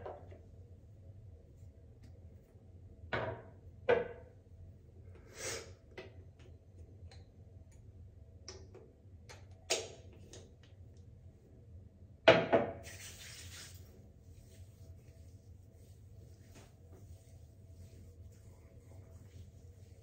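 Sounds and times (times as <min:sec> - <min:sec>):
faint low room hum: 0:00.0 - 0:20.0.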